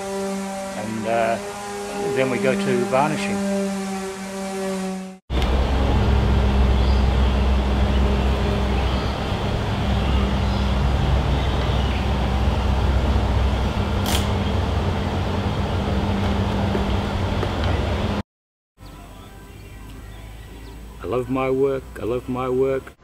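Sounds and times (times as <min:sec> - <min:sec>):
machine hum with low rumble: 0:05.3 - 0:18.2
sharp click: 0:14.0 - 0:14.4.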